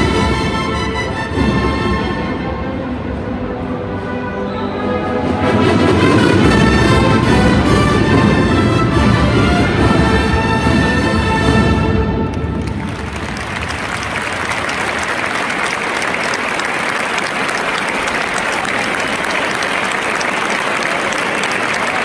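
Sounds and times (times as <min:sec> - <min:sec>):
band music: 0:00.0 - 0:21.7
audience applauding: 0:12.3 - 0:22.0.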